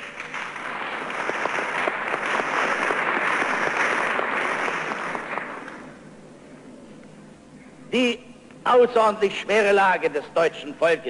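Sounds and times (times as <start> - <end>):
audience clapping: 0.0 - 6.0.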